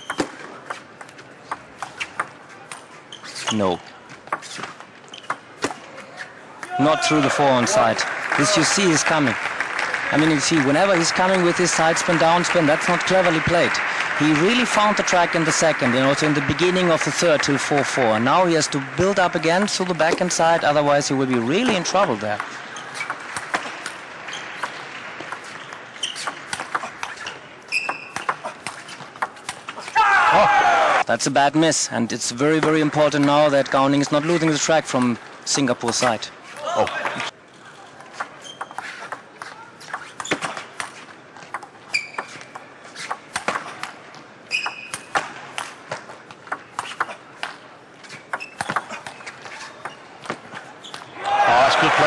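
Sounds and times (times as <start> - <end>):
shoes squeaking on floor: 0.0 - 0.4, 1.8 - 5.4, 24.3 - 24.8, 25.4 - 29.1, 38.1 - 43.7, 44.5 - 45.1, 48.0 - 51.1.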